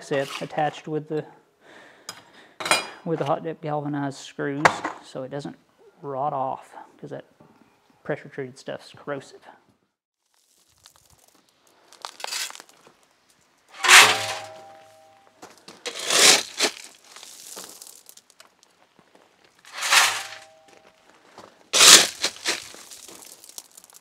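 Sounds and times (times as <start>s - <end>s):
shovel scraping gravel: 0.0s - 0.7s, 11.9s - 12.8s, 13.8s - 15.1s, 15.7s - 18.4s, 19.7s - 20.8s, 21.8s - 24.0s
shovel metallic ring: 13.8s - 15.2s, 19.7s - 20.7s.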